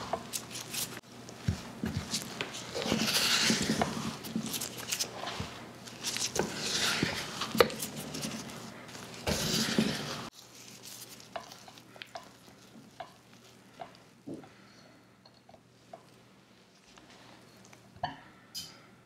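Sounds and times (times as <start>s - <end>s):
spatula scraping glass bowl: 2.7s - 4.3s, 6.3s - 8.5s, 9.2s - 10.3s.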